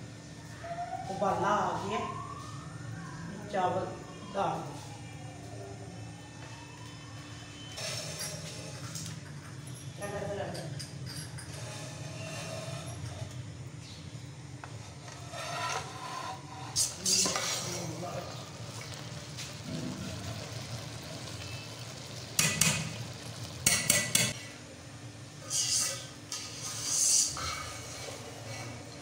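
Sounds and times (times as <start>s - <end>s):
metal spoon scraping a pot: 10.6s - 13.3s, 14.8s - 18.0s, 25.5s - 29.0s.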